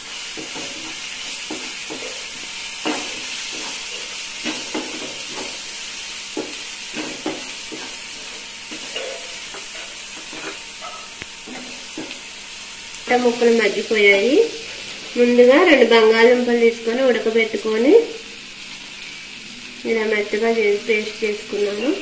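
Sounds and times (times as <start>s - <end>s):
onions and spices sizzling: 0.0s - 22.0s
wooden spatula scraping a pan: 0.2s - 5.7s, 6.4s - 12.2s.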